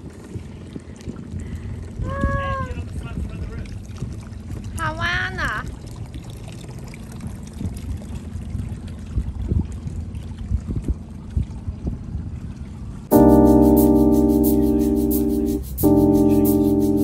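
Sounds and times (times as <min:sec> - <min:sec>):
water lapping against boat hull: 0:02.6 - 0:12.8.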